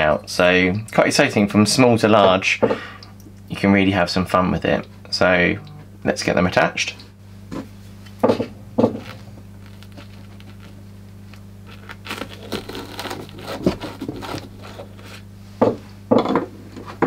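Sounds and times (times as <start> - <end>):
faint low hum: 0.0 - 17.0
crinkly rustling: 9.0 - 15.2.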